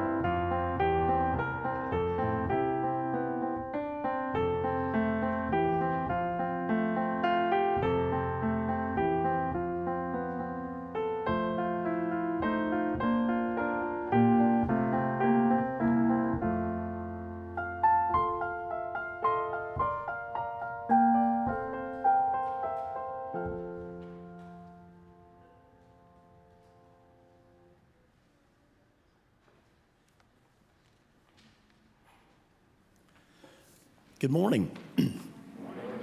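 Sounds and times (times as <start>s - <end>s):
piano music: 0.0s - 27.8s.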